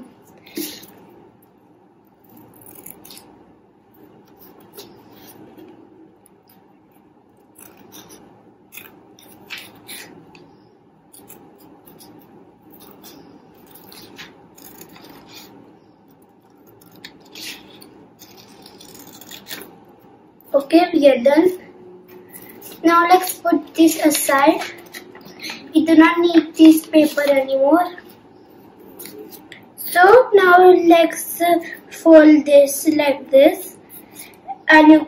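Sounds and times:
scissors snipping paper: 0:02.2 - 0:03.3, 0:07.4 - 0:10.4, 0:11.1 - 0:19.8, 0:28.8 - 0:29.6.

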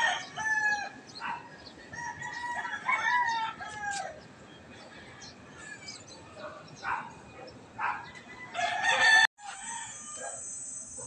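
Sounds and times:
rooster crowing: 0:00.0 - 0:01.0, 0:01.9 - 0:04.2, 0:08.0 - 0:10.5.

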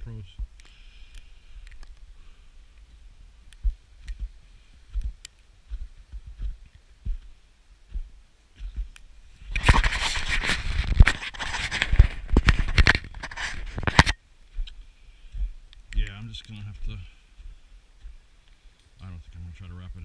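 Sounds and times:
rustling and scraping: 0:00.0 - 0:18.6
sharp clicks: 0:00.5 - 0:02.0.

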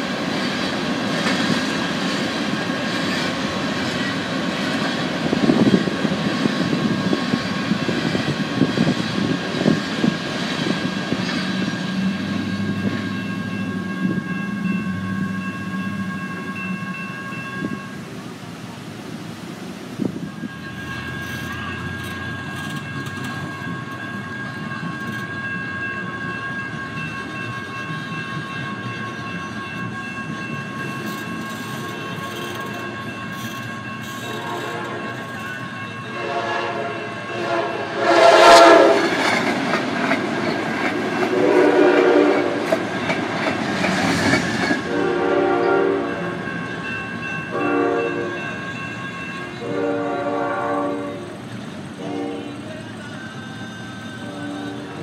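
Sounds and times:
crossing warning bells ringing: 0:00.0 - 0:18.9, 0:20.0 - 0:55.0
train horn blasts: 0:34.2 - 0:35.3, 0:36.1 - 0:39.2, 0:41.2 - 0:42.8, 0:44.8 - 0:46.5, 0:47.5 - 0:48.4, 0:49.5 - 0:51.4, 0:52.0 - 0:52.8, 0:54.2 - 0:55.0.

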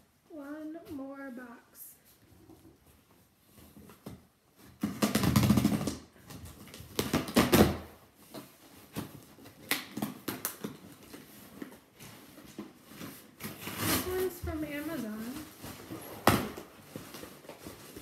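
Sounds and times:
tape tearing and scraping: 0:03.6 - 0:18.0.

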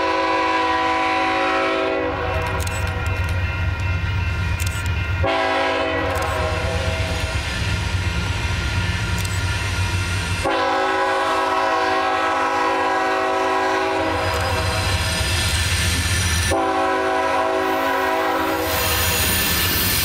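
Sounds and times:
locomotive air horn: 0:00.0 - 0:02.6, 0:05.2 - 0:07.2, 0:10.4 - 0:15.0, 0:16.5 - 0:18.8.

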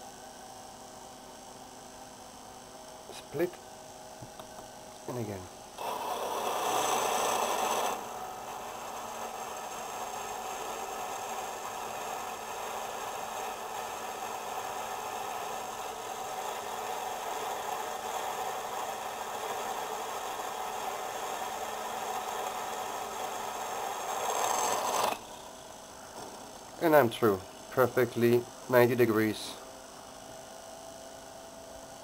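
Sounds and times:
bench drill whirring: 0:05.2 - 0:26.7.

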